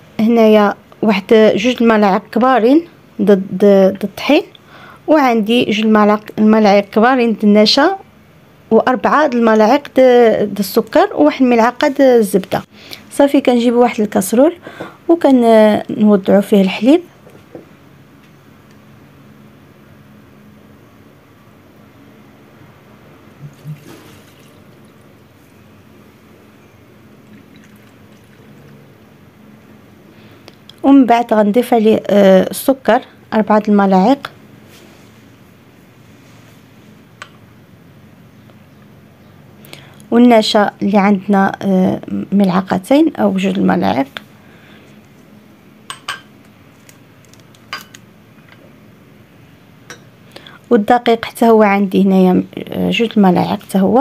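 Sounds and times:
milk pouring into a saucepan: 23.4s - 25.0s, 27.2s - 28.8s
spoon clinking against cookware: 45.9s - 46.3s, 47.7s - 48.0s.

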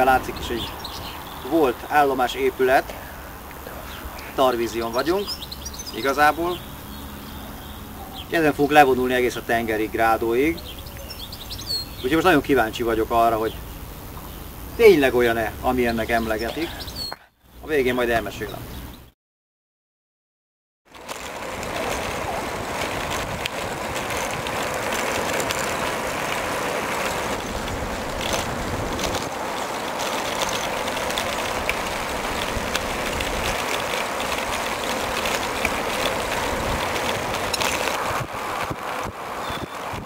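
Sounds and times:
bicycle tyres rolling on asphalt: 0.0s - 19.1s, 20.9s - 40.0s
wind rushing over microphone: 21.4s - 40.0s.

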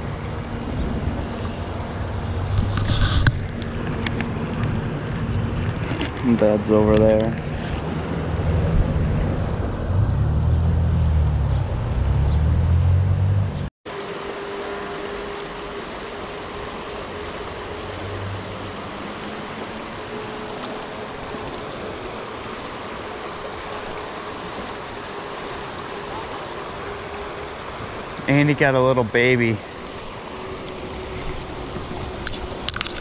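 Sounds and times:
wind buffeting microphone: 0.0s - 12.7s
water rushing over rocks: 13.9s - 33.0s.

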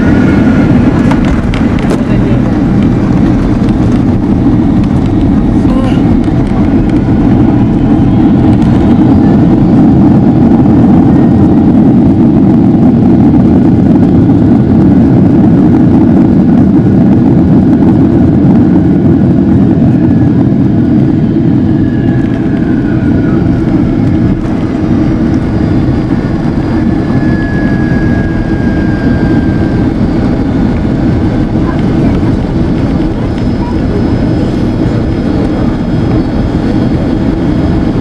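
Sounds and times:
jet engines and wheels rumbling: 0.0s - 38.0s
faint thin whine: 21.4s - 30.5s.

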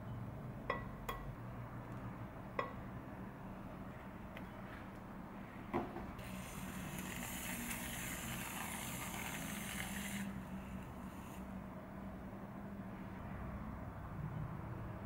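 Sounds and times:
aerosol can hissing: 6.2s - 10.4s.

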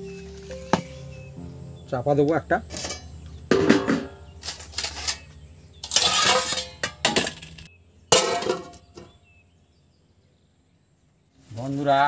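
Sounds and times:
dishes clattering: 2.7s - 9.1s
plate scraping: 2.7s - 9.1s
dish knocks: 2.8s - 4.3s
sharp dish clink: 5.8s - 7.6s.

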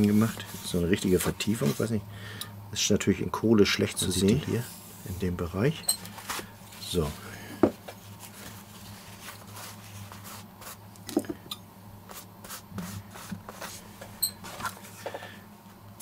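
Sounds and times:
paper towel rustling: 0.0s - 1.9s, 6.1s - 10.8s, 12.1s - 15.0s.

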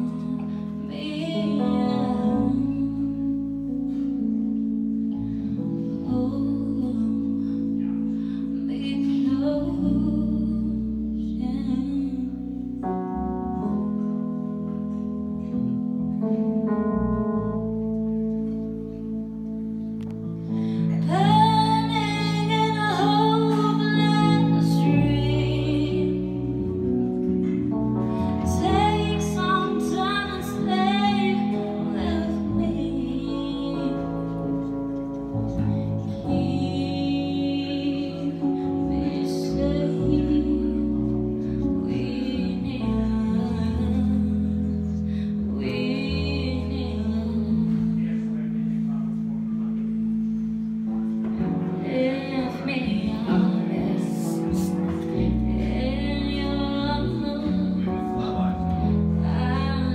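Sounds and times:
woman singing: 0.0s - 3.9s, 5.9s - 12.7s, 20.7s - 26.8s, 28.2s - 34.9s, 35.6s - 48.2s, 51.7s - 59.9s
electric bass: 0.0s - 59.9s
electric keyboard chords: 0.0s - 59.9s.

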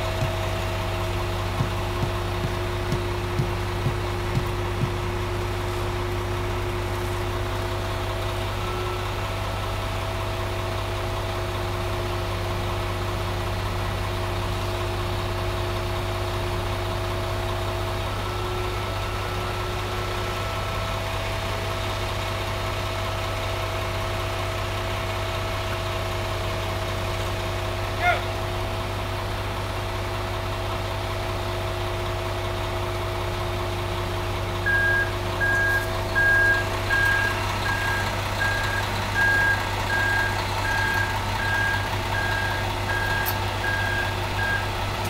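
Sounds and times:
truck diesel engine droning: 0.0s - 45.0s.

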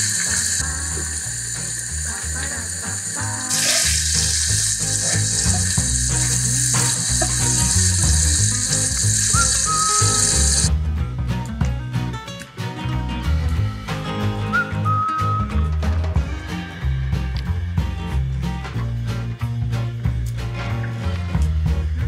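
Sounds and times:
shrimp sizzling in a frying pan: 0.0s - 10.7s
background music: 0.0s - 22.0s.

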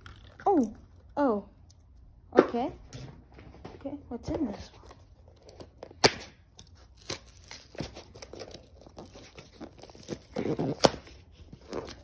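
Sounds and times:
cardboard tearing: 5.4s - 12.0s
cardboard snapping: 5.6s - 12.0s.

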